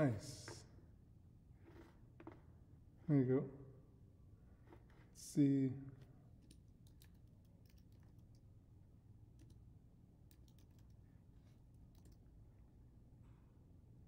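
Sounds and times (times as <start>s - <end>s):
faint keyboard typing: 6.4s - 8.5s, 9.3s - 12.4s.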